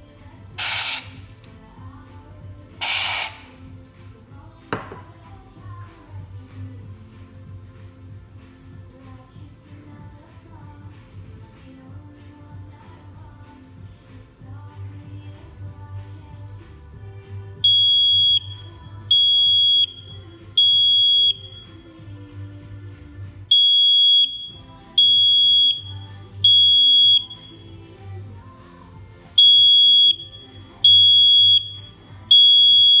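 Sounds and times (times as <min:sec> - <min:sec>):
quiet background music: 0:00.0 - 0:33.0
smoke detector alarm beeping: 0:17.6 - 0:21.9, 0:23.5 - 0:27.7, 0:29.4 - 0:33.0.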